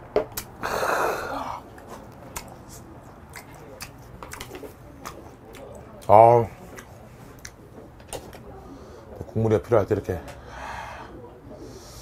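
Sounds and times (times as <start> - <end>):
man exhaling loudly: 0.6 - 1.6
quiet chewing: 1.6 - 8.6.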